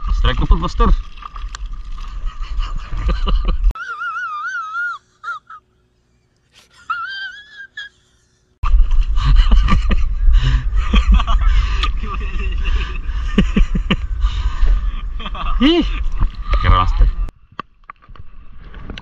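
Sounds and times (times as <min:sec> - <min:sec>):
wind rumble on microphone: 0:08.6 - 0:17.5.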